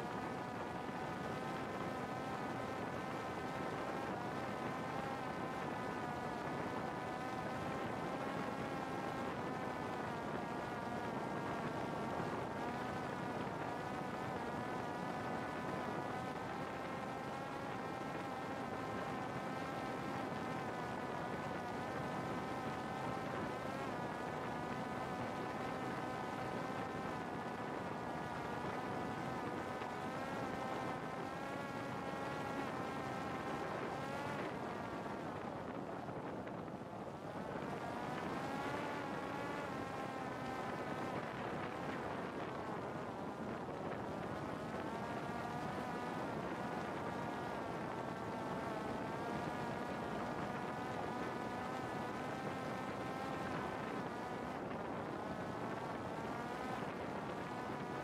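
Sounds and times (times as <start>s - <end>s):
drone motor buzzing whine: 0.1s - 36.6s.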